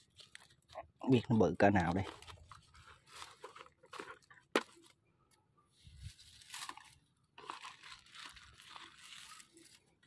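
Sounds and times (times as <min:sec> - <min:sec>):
plastic sack rustling and crinkling: 0:00.0 - 0:05.0, 0:05.8 - 0:10.0.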